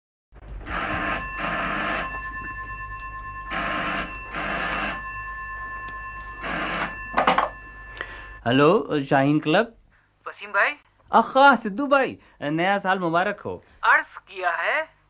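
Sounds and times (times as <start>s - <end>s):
telephone ringing: 0.4s - 8.5s.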